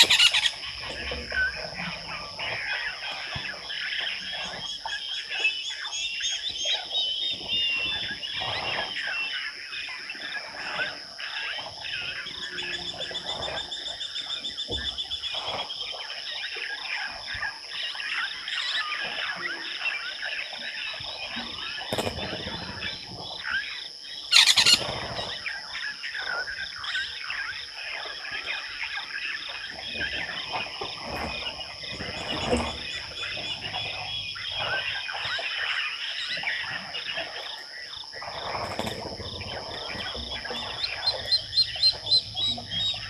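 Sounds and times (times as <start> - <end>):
loud animal call: 0.0 - 5.6, 10.2 - 14.5, 21.5 - 27.6
birds chirping and calling: 0.0 - 43.0
frogs calling: 0.0 - 43.0
high insect drone: 0.0 - 43.0.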